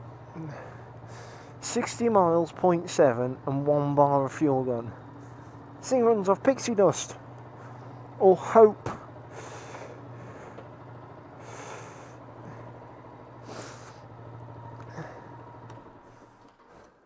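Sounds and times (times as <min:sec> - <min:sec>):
motorcycle engine idling: 0:00.0 - 0:17.0
rider breathing: 0:00.3 - 0:01.6, 0:07.5 - 0:08.0, 0:08.9 - 0:17.0.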